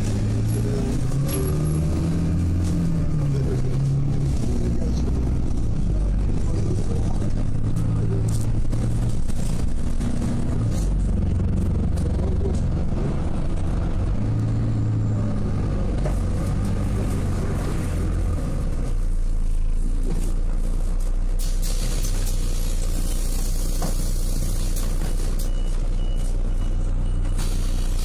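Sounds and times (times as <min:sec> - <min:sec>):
vehicle engine and road noise: 0:00.0 - 0:28.0.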